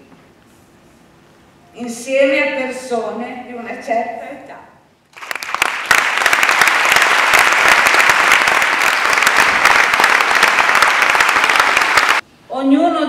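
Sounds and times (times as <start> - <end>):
audience applauding: 5.1 - 12.2.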